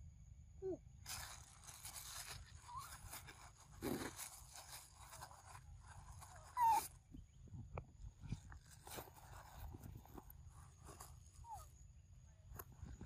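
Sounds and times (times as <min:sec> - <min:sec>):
rustle of grass and leaves: 0:01.0 - 0:07.2, 0:08.0 - 0:11.8.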